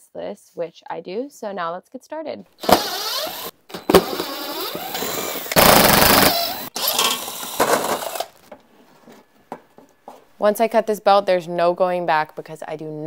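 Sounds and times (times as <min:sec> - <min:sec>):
impact driver hammering: 0:04.8 - 0:08.2.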